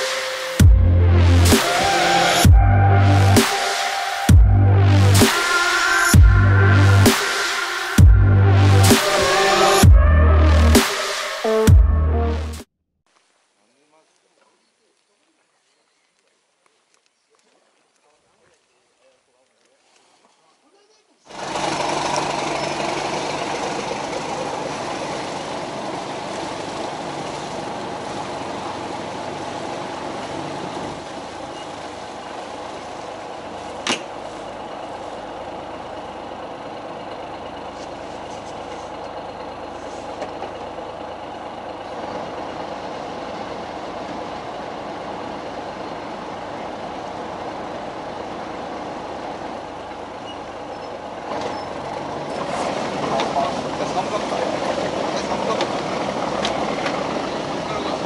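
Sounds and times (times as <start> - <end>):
broad rushing noise: 0.0 - 4.4, 5.0 - 8.0, 8.7 - 9.9
boat engine running: 21.4 - 58.0.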